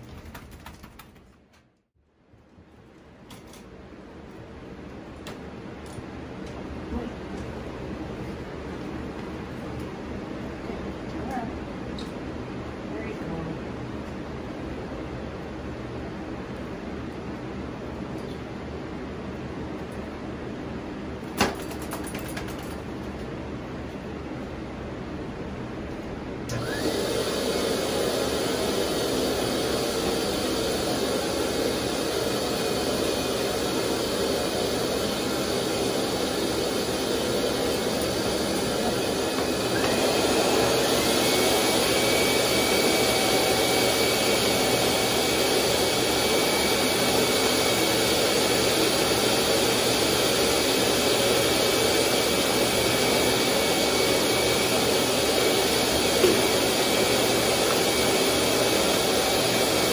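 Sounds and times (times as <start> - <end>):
pet dryer blower rushing air: 26.4 - 59.9.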